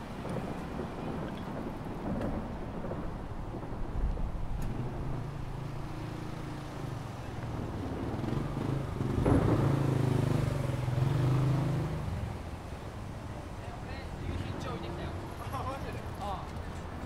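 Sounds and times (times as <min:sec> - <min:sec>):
vehicle engine passing: 0:04.6 - 0:17.0.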